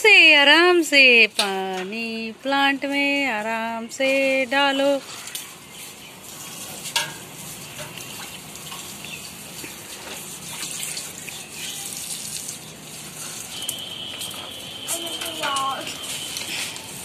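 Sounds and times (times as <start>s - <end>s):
water sloshing and pouring: 5.1s - 17.0s.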